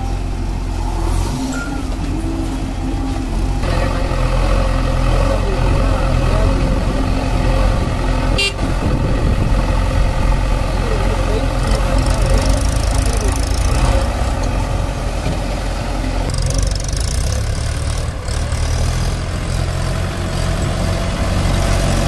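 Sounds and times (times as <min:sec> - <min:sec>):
diesel engine running: 0:00.0 - 0:22.0
short high beep: 0:01.5 - 0:01.9.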